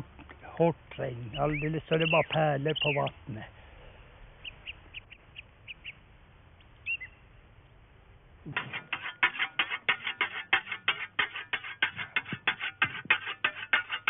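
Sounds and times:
faint bird chirps: 1.3s - 3.2s, 4.4s - 6.0s, 6.8s - 7.3s.

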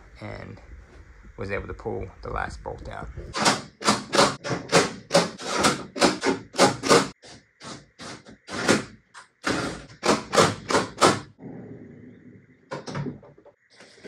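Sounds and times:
knocks and rattles on sheet metal: 3.3s - 11.4s.

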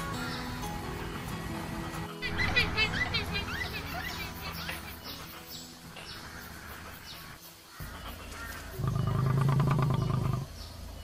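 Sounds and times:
lion roaring: 8.8s - 10.5s.

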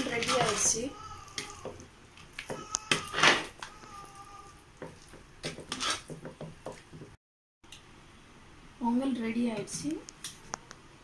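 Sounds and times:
metal ladle scraping a pot: 5.0s - 6.2s.

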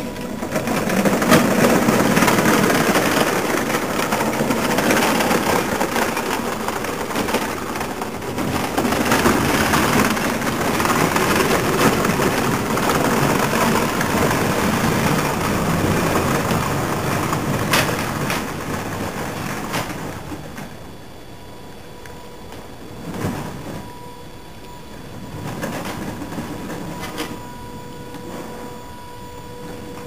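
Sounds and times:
toy tank tracks running: 0.0s - 20.8s.

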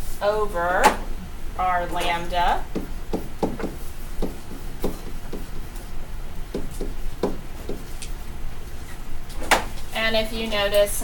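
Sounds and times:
stylus tapping on screen: 2.7s - 5.9s, 6.5s - 7.9s.

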